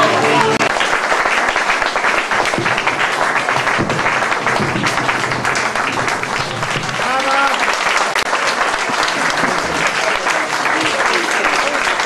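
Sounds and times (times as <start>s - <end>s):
acoustic guitars playing: 0.0s - 0.7s
audience applauding: 0.0s - 12.0s.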